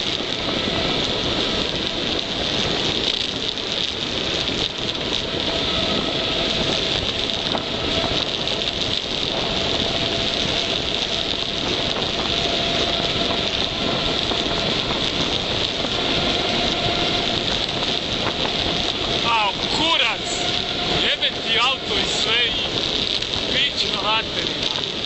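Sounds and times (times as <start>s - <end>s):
bike tyres rolling on tarmac: 0.0s - 25.0s
wind rushing over microphone: 0.0s - 25.0s.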